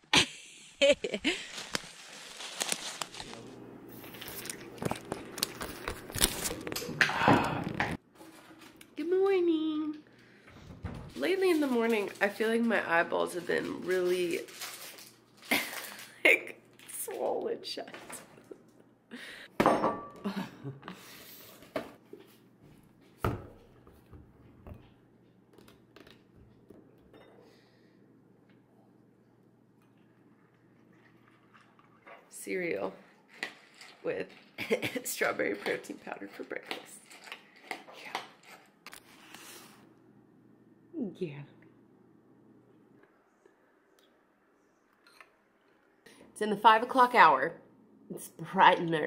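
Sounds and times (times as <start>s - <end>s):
rustling and crunching: 1.2s - 6.9s, 11.1s - 16.2s.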